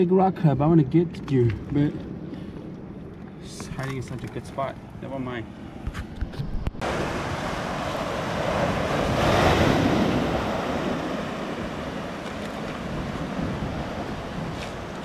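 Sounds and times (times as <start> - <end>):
surf breaking on rocks: 6.8 - 15.0.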